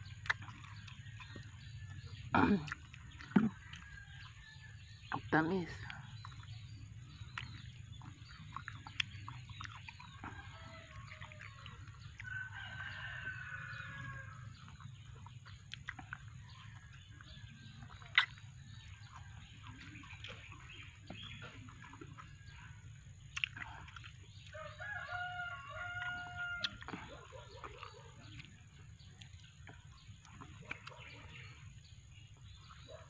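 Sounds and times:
rooster crowing: 12.2s - 14.6s, 24.6s - 26.8s.

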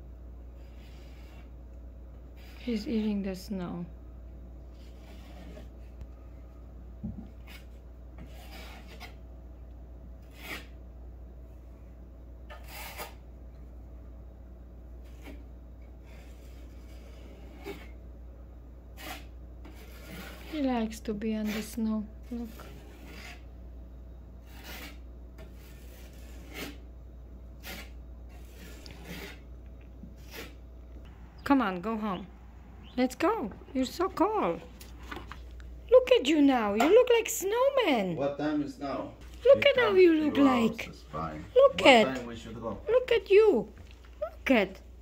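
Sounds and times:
steady low rumble: 30.8s - 35.9s.

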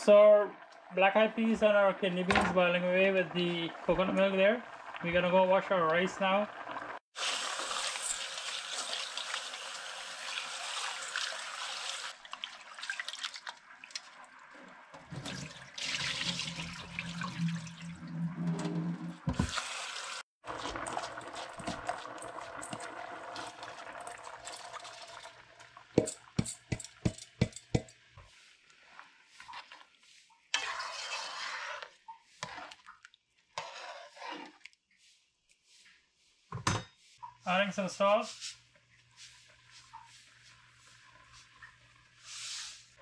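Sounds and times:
tap water running into metal bowl: 7.2s - 14.0s, 15.0s - 18.0s, 19.3s - 27.9s
water poured into sink: 7.2s - 14.2s, 15.0s - 18.3s, 19.3s - 25.9s
hands swishing rice in water: 28.3s - 36.4s, 42.2s - 42.9s.

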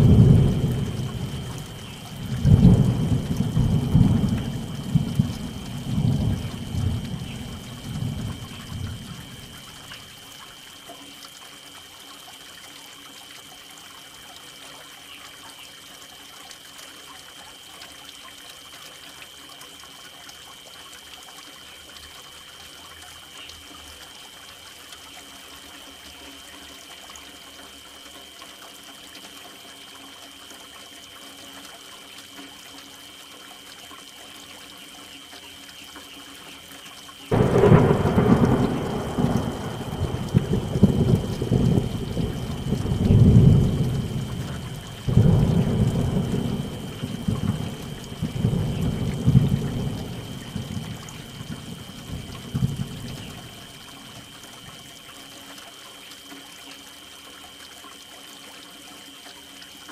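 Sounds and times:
thunderclap and rolling rumble: 0.0s - 9.8s, 37.3s - 53.8s
soft steady rain: 0.0s - 59.9s.

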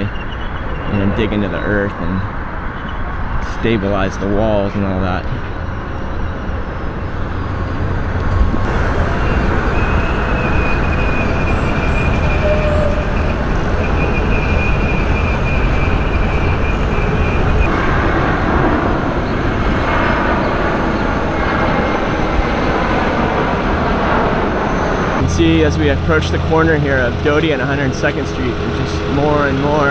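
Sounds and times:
road traffic: 0.0s - 29.9s
thin high whine: 4.8s - 29.9s
construction machinery: 6.6s - 20.0s, 24.6s - 29.9s.

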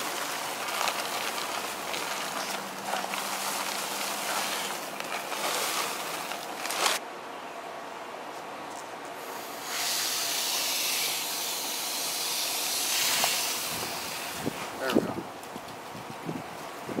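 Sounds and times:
dry concrete mix pouring: 0.0s - 7.0s.

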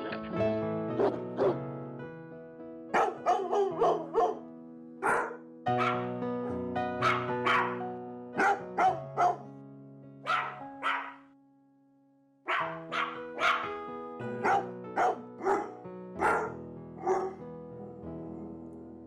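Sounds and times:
music with sustained chords: 0.0s - 10.8s
rhythmic dog barks: 1.0s - 1.6s, 2.9s - 4.4s, 5.0s - 6.1s, 7.0s - 9.5s, 10.2s - 11.3s, 12.5s - 13.8s, 14.4s - 17.4s.

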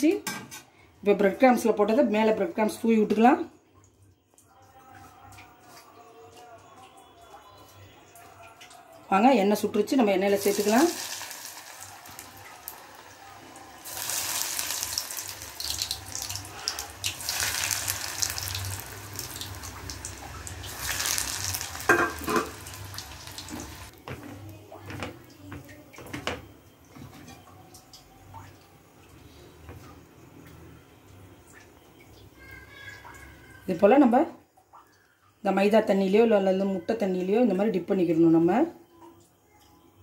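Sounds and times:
food deep-frying in hot oil: 9.6s - 25.1s.

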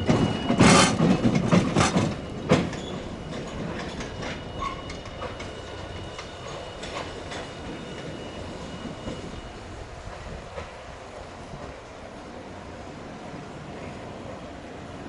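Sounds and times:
wheels clacking over rail joints: 0.0s - 9.3s
streetcar rumbling on track: 0.0s - 15.0s.

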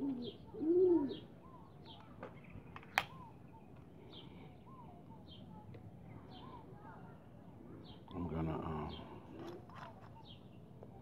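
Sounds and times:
pigeons cooing: 0.0s - 1.4s.

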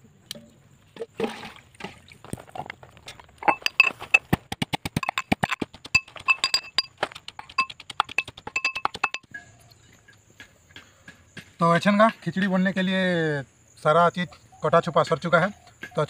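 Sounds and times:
metal pestle pounding in mortar: 3.4s - 9.2s.

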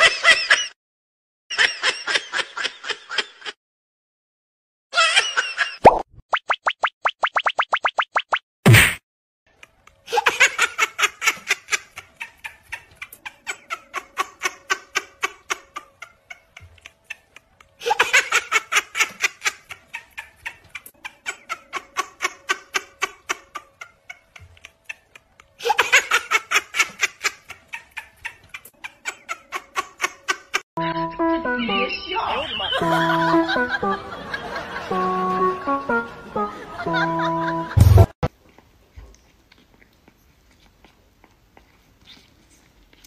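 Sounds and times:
person laughing: 32.4s - 35.0s, 36.7s - 38.2s
short loud hit: 37.8s - 38.1s.

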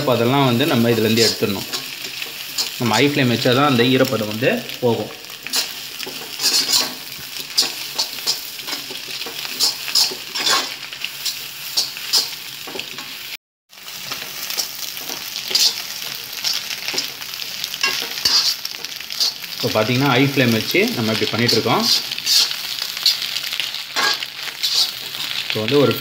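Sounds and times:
vegetables sizzling in a wok: 0.0s - 26.0s
metal spatula scraping pan: 0.9s - 2.8s, 5.4s - 13.2s, 14.5s - 17.2s, 17.8s - 19.5s, 21.4s - 25.5s.

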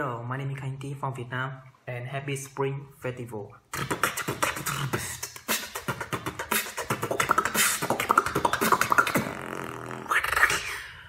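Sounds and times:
beatboxing: 3.7s - 11.0s.

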